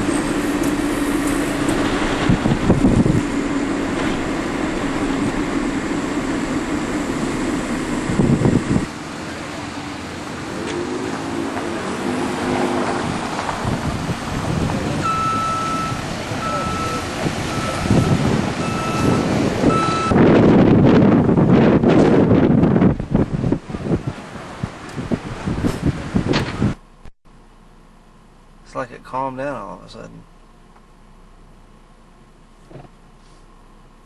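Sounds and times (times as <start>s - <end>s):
car engine drone and road noise: 0.0s - 34.0s
outdoor vehicle noise: 0.0s - 34.0s
truck reversing beeper: 15.0s - 20.2s.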